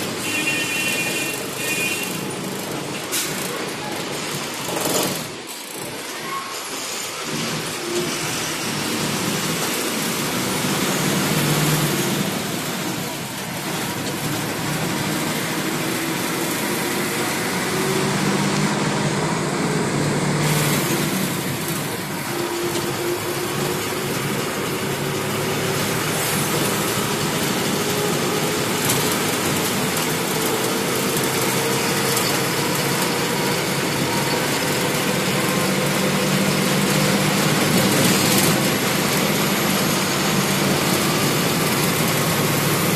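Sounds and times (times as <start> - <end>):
bus engine running: 0.0 - 42.9
road and wind noise: 0.0 - 42.9.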